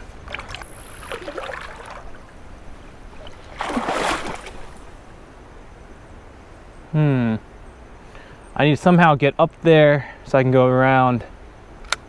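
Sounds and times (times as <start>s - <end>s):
river water splashing: 0.0s - 5.4s.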